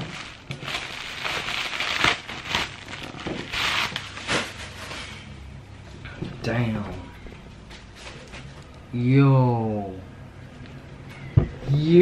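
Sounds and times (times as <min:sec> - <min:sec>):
packaging rustling and crinkling: 0:00.0 - 0:05.2.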